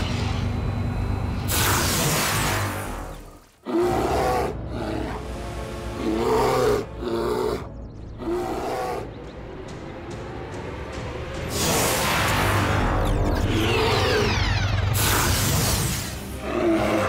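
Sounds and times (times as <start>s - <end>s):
background music: 2.8s - 17.0s
cartoon bear growling and roaring: 3.6s - 9.2s, 12.8s - 15.2s, 16.4s - 17.0s.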